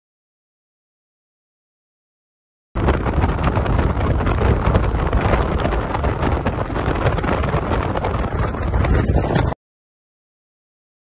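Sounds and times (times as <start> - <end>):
wind buffeting microphone: 2.8 - 9.6.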